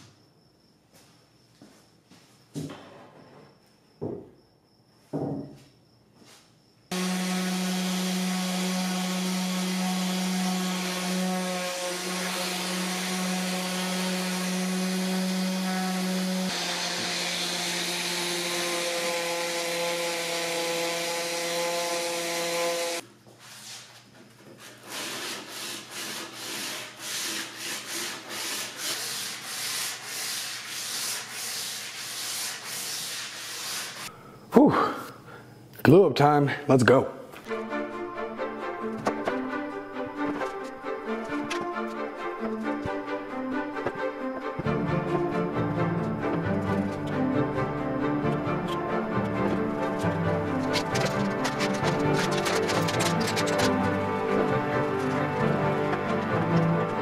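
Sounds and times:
orbital sander running: 0:06.9 - 0:23.0
hand sanding strokes on wood: 0:06.9 - 0:23.9, 0:24.6 - 0:34.1.

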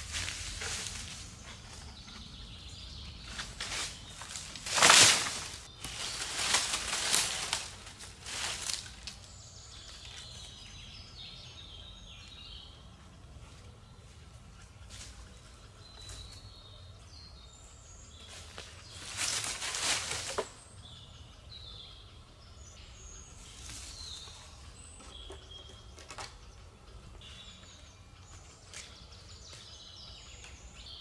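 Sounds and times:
dry leaves crunching and rustling: 0:00.0 - 0:01.5, 0:03.2 - 0:10.4, 0:18.2 - 0:20.6
footsteps on leaf litter: 0:00.0 - 0:01.7, 0:03.2 - 0:10.6, 0:18.2 - 0:20.6.

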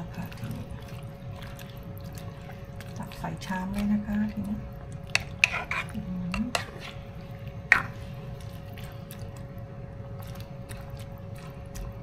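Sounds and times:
faint steady hum: 0:00.0 - 0:12.0
plastic ladle scraping a pan: 0:05.1 - 0:07.0.

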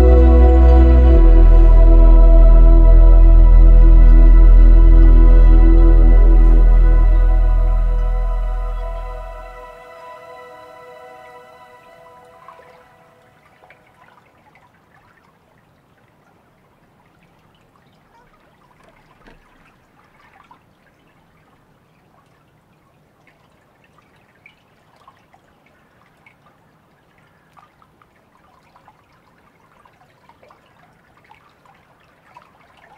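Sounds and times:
faint trickling water: 0:00.0 - 0:32.9
small drips and ticks: 0:12.5 - 0:32.9.

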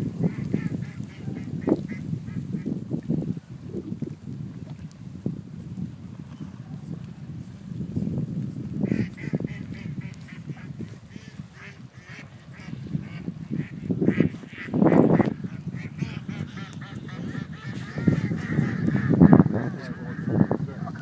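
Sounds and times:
wind buffeting microphone: 0:00.0 - 0:21.0
geese honking: 0:08.9 - 0:21.0.

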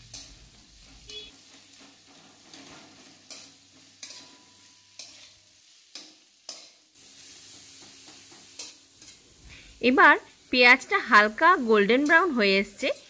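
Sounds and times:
onions sizzling in oil: 0:00.0 - 0:13.0
spoon scraping pan: 0:00.1 - 0:09.3.

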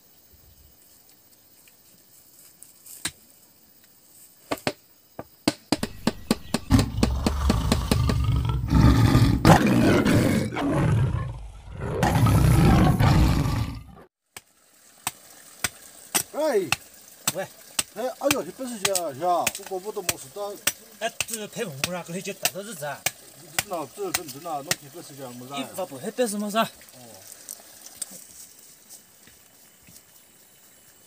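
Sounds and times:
animal roaring and growling: 0:06.4 - 0:14.1.

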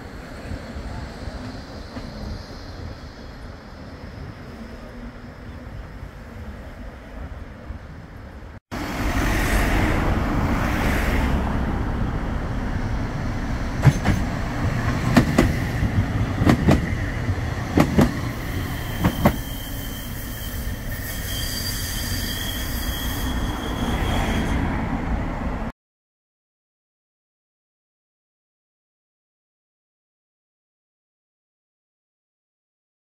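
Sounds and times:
tram running noise: 0:00.0 - 0:25.7.

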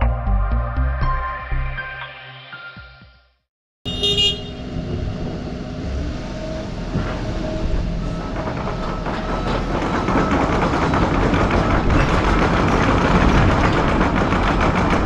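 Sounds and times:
brief horn-like tone: 0:03.9 - 0:04.8
excavator engine and hydraulics: 0:03.9 - 0:15.0.

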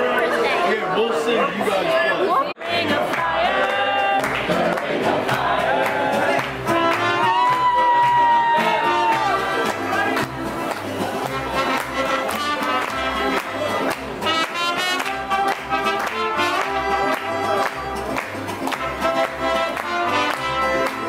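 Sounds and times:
people clapping along: 0:02.6 - 0:21.0
strummed guitar: 0:02.6 - 0:21.0
trumpet: 0:06.2 - 0:10.3, 0:11.2 - 0:21.0.

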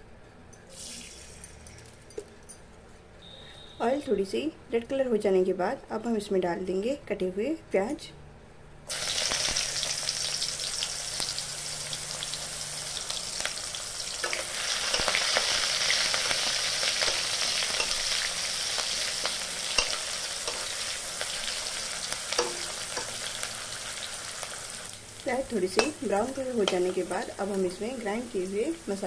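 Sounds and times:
onions sizzling in hot oil: 0:08.9 - 0:29.0.

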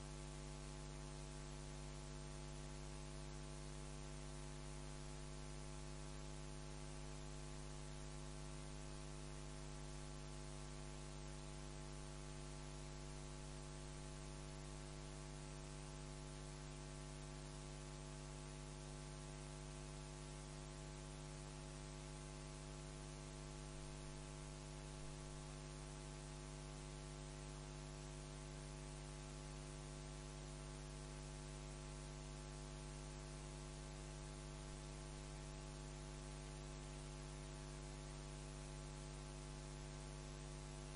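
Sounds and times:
electrical mains hum: 0:00.0 - 0:40.9.

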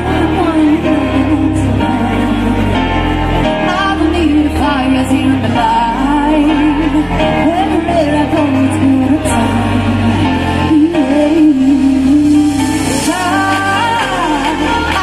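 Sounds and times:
live pop band playing: 0:00.0 - 0:15.0
woman singing into microphone: 0:00.0 - 0:15.0.

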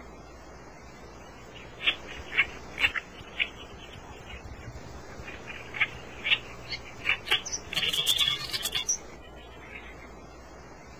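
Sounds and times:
warblers chirping: 0:00.7 - 0:10.9
high bird chattering: 0:01.5 - 0:10.1.

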